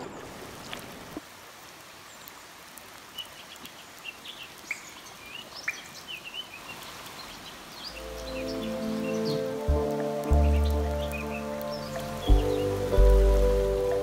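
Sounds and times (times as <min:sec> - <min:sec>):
running water: 0:00.0 - 0:14.0
small birds chirping: 0:02.0 - 0:14.0
music: 0:08.0 - 0:14.0.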